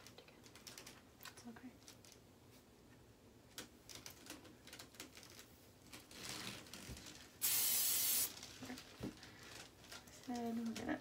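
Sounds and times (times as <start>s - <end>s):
hairspray can hiss: 7.4s - 8.3s.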